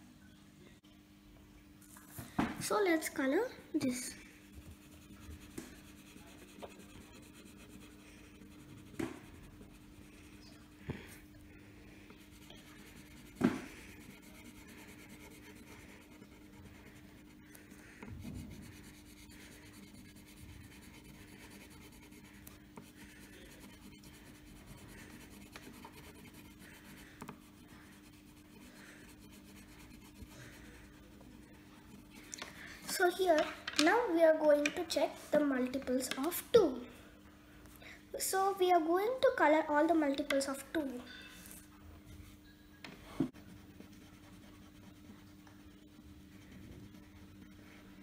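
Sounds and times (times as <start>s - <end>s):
crayon scratching on paper: 4.0s - 11.2s, 12.2s - 33.4s, 43.3s - 48.0s.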